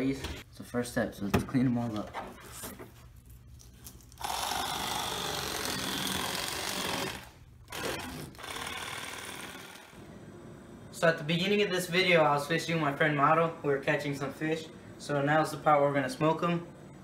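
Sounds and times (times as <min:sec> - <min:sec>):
electric knife buzzing: 0:04.1 - 0:10.0.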